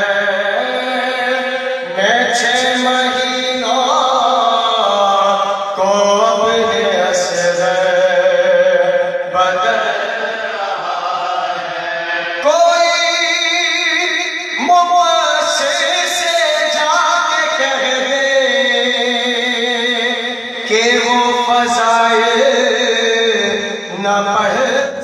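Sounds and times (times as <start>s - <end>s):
men chanting unaccompanied: 0.0s - 16.8s.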